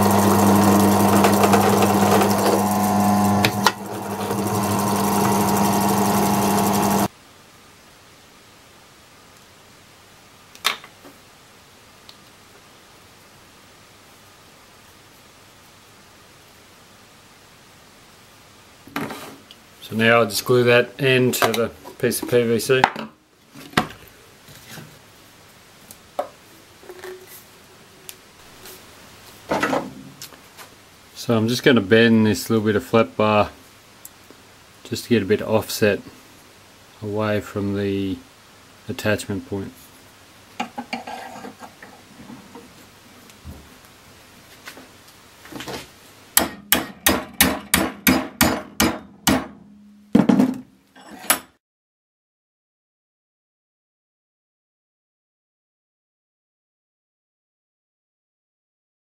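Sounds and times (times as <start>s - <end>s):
hammer striking metal bar: 46.4s - 50.2s.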